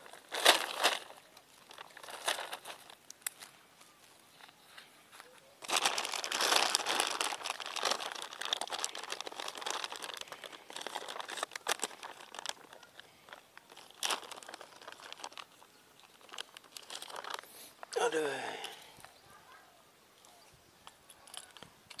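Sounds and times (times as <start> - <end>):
plastic packet crinkling: 0.0 - 3.5, 5.6 - 18.8, 21.2 - 22.0.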